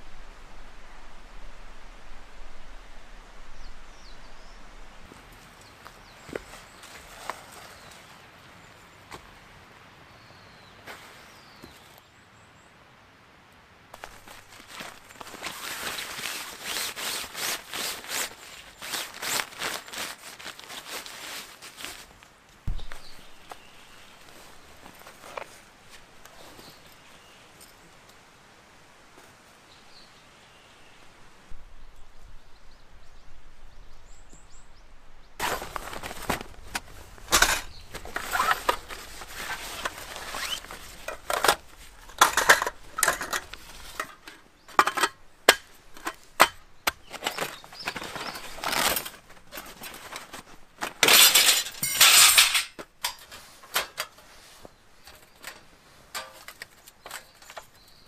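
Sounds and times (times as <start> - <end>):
fabric rucksack rustling: 5.1 - 8.2, 14.0 - 27.0, 35.4 - 57.8
metal kit clinking and clattering: 35.4 - 54.3, 55.0 - 57.7.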